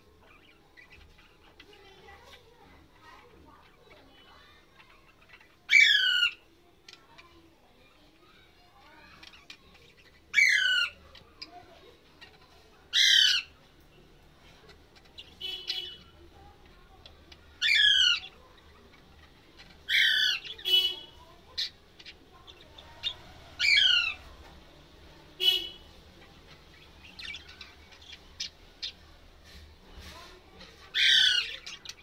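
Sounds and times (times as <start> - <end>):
budgerigar harsh calls: 5.7 - 6.4, 10.3 - 11.0, 12.9 - 13.5, 17.6 - 18.3, 19.9 - 21.8, 23.0 - 24.2, 30.9 - 32.0.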